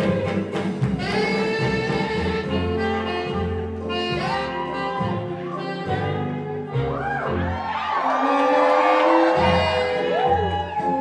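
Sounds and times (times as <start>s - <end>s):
jazz music with saxophone and brass: 0.0s - 11.0s.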